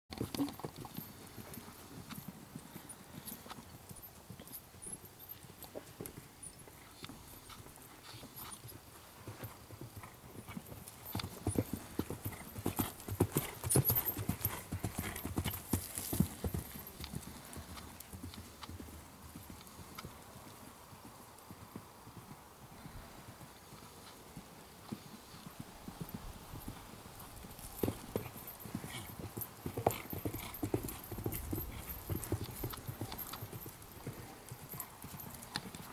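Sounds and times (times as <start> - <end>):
horse hoofbeats on dirt: 0.1 - 35.9.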